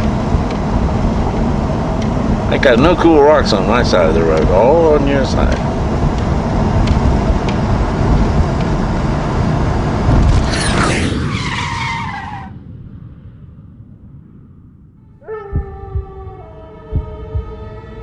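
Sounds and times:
road and wind noise in vehicle: 0.0 - 12.6.

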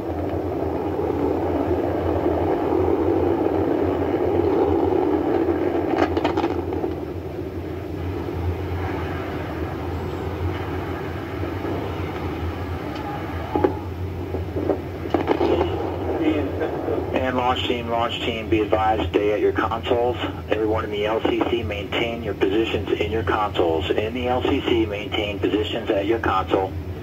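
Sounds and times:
deep rocket roar: 0.0 - 24.4
explosion crackles: 3.3 - 7.0, 14.3 - 17.6.

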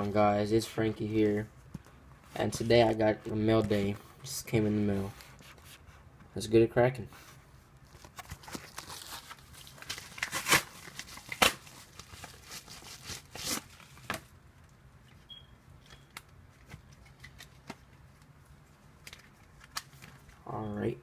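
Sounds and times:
paper crinkling: 7.8 - 14.2
paper envelope tearing: 8.1 - 14.0.

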